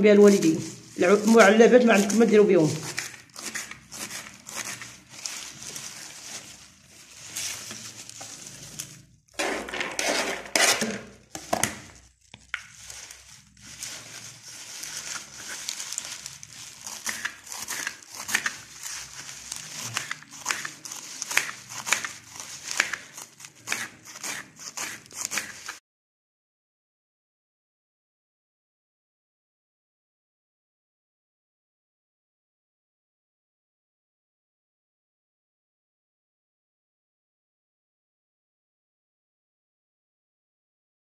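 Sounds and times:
knife chopping greens on board: 0:02.0 - 0:04.8, 0:16.8 - 0:19.0, 0:19.7 - 0:25.8.

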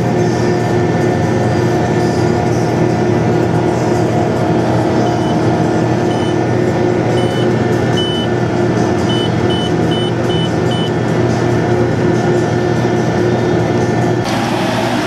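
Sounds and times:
tractor engine running under load: 0:00.0 - 0:15.0
short high electronic beeps: 0:05.0 - 0:05.4, 0:06.1 - 0:06.4, 0:07.2 - 0:08.3, 0:09.1 - 0:10.9.

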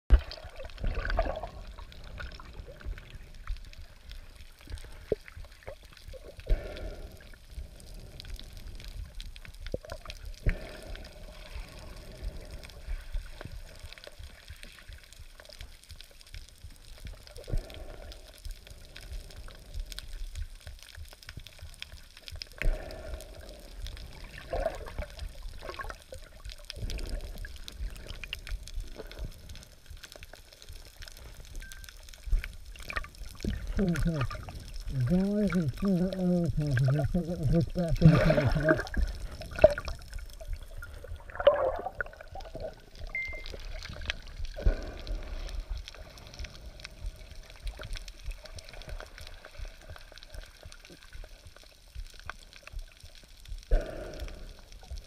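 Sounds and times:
regulator bubbles gurgling: 0:00.1 - 0:14.3, 0:22.4 - 0:29.5, 0:31.6 - 0:51.9.

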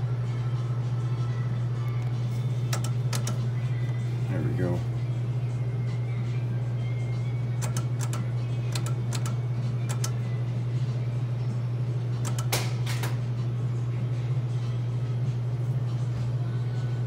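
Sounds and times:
slot machine reel clicks: 0:02.7 - 0:03.4, 0:07.6 - 0:10.2, 0:12.2 - 0:13.2.

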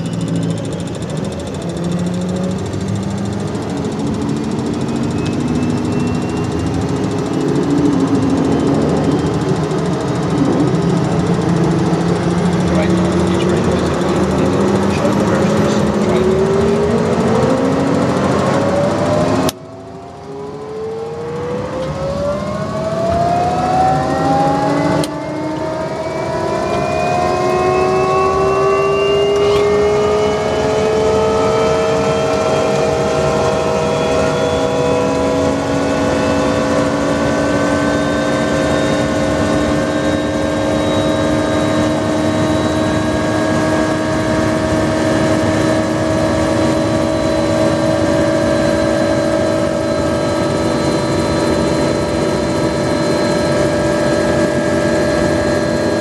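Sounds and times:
helicopter engine whine spooling up: 0:00.0 - 0:56.0.

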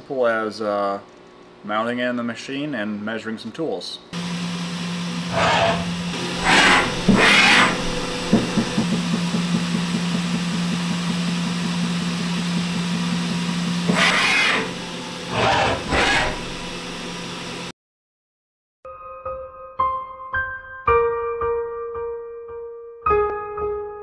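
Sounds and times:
machine hum: 0:04.2 - 0:17.7.

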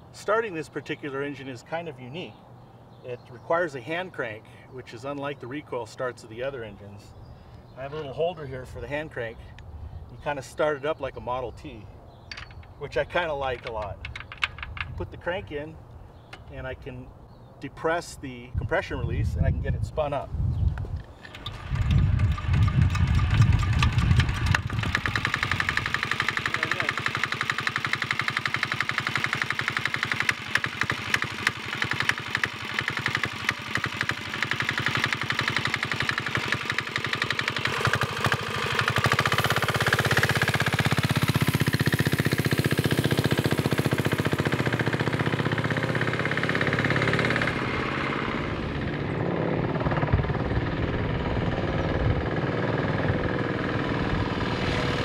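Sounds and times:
diesel engine knocking: 0:21.6 - 0:48.9.

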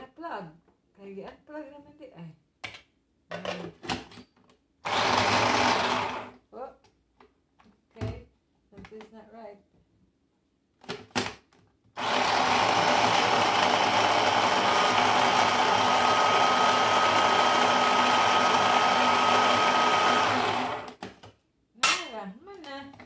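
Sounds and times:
electric food chopper whining: 0:04.8 - 0:06.4, 0:12.0 - 0:21.0.

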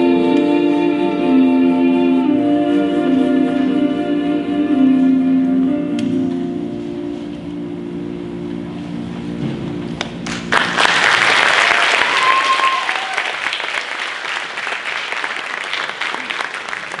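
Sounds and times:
held music notes: 0:00.0 - 0:10.6
audience applause: 0:10.3 - 0:17.0
high call from crowd: 0:11.4 - 0:13.8.

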